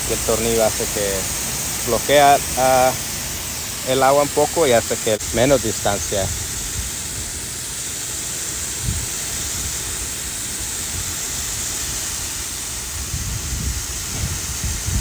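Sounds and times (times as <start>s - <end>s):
sprinkler spray hissing: 0.0s - 15.0s
wind rumble on microphone: 8.8s - 9.8s, 12.9s - 15.0s.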